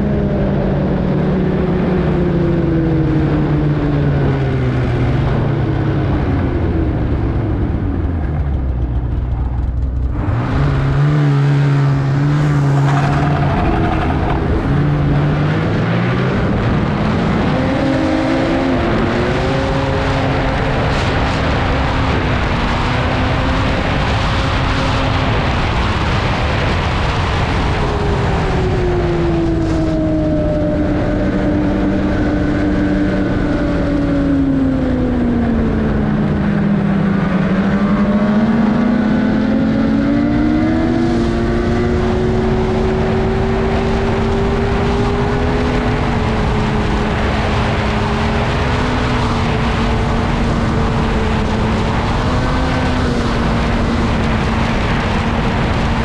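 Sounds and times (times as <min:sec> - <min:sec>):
constant rushing noise: 0:00.0 - 0:56.0
snowmobile engine running: 0:00.0 - 0:56.0.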